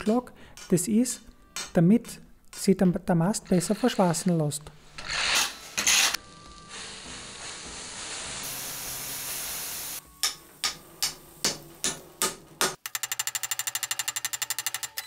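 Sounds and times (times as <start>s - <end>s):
steady hiss: 5.6s - 12.1s.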